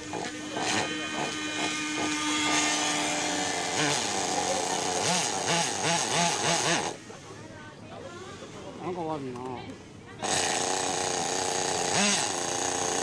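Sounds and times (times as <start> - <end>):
small engine high-pitched buzz: 0.0 - 7.3, 10.2 - 13.0.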